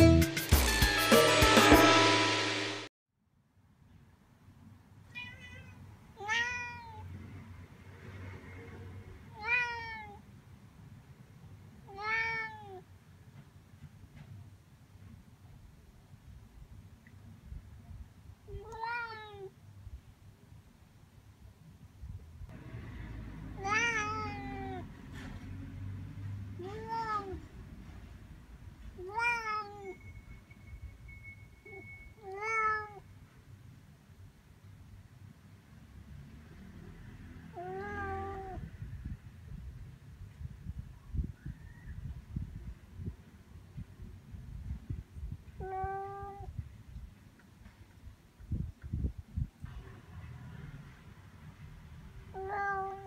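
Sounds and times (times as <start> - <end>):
cat meowing: 5.1 - 7.2, 9.3 - 10.2, 11.8 - 12.9, 18.5 - 19.6, 23.6 - 24.9, 26.6 - 27.6, 29.0 - 30.0, 31.7 - 33.1, 37.5 - 38.7, 45.6 - 46.5, 52.3 - 53.0.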